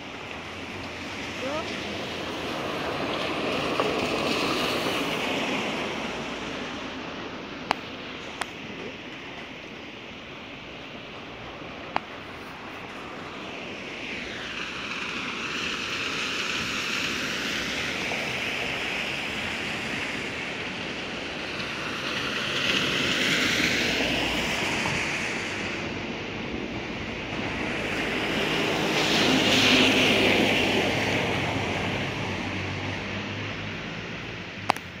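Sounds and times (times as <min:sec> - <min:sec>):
car tyres hissing on wet road: 0:00.0 - 0:34.5.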